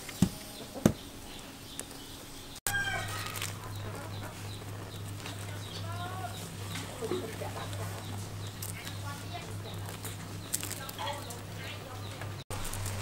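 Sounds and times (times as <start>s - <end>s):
steady low hum: 0.0s - 13.0s
charcoal popping: 2.7s - 13.0s
chicken clucking: 2.9s - 9.9s.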